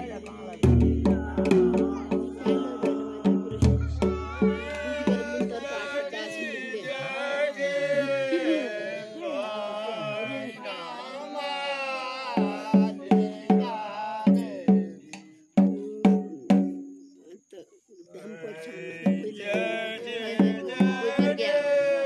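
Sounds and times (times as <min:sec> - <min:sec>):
drum beating steadily: 0:00.0 - 0:05.8, 0:12.4 - 0:17.0, 0:19.1 - 0:21.5
voices singing folk melody: 0:00.0 - 0:22.0.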